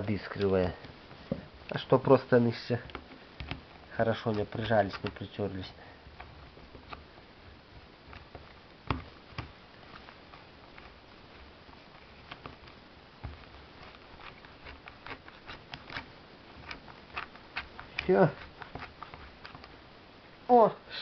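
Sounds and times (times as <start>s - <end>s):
small clicks and knocks: 2.8s - 5.4s.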